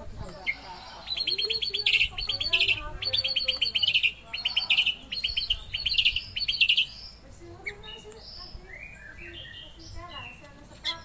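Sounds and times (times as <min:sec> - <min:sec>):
bird singing sharp high notes: 0:00.4 - 0:11.0.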